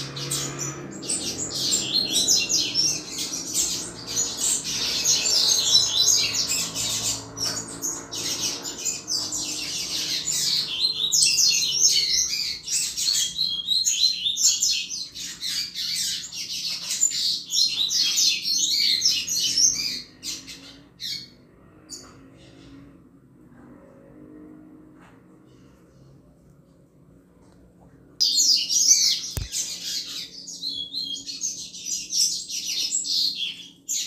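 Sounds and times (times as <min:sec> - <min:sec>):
bird high twittering song: 0:00.0 - 0:22.2, 0:28.2 - 0:34.0.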